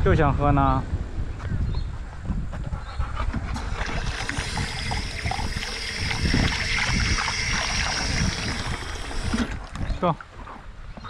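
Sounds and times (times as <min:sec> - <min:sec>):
water running from tap: 0:03.6 - 0:09.8.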